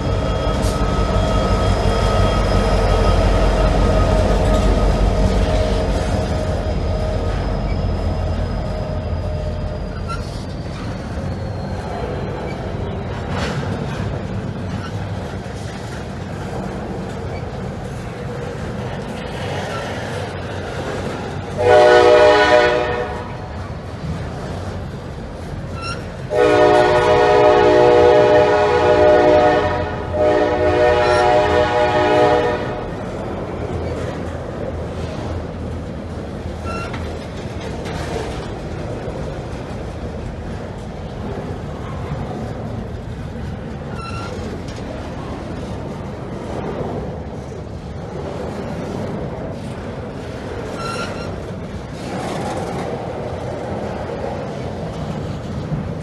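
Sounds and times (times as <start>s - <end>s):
metallic squeal: 0.0s - 12.6s, 25.8s - 26.1s, 43.9s - 44.5s, 50.7s - 51.4s
train wheels rumbling on rail: 0.0s - 56.0s
locomotive air horn blasts: 21.5s - 23.5s, 25.8s - 33.0s.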